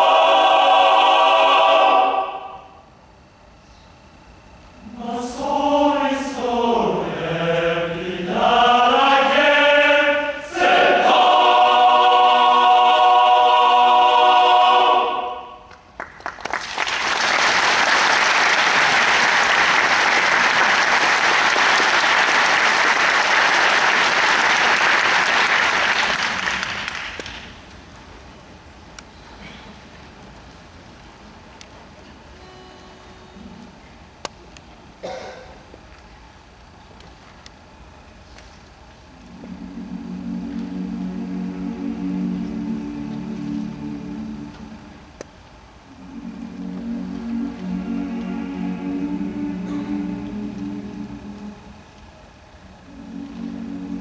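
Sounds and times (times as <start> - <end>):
men's choir singing: 0.0 - 2.7, 4.8 - 15.6, 39.2 - 45.0, 45.9 - 51.8, 52.9 - 54.0
audience applause: 15.7 - 27.5.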